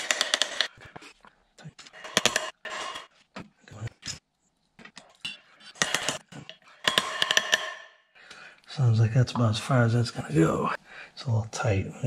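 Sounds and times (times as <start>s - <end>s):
metal clinks knocks and scrapes: 4.8s - 8.0s.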